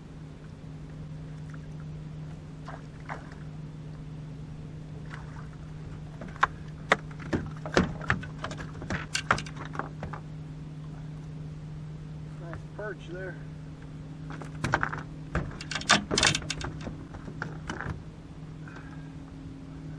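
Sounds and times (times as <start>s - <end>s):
steady low hum: 0.0s - 19.9s
fish knocking and slapping in boat: 5.1s - 10.3s, 14.2s - 18.1s.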